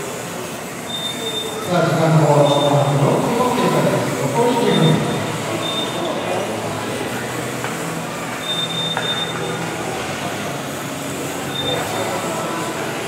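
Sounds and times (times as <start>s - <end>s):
thin high whine: 0.7s - 13.0s.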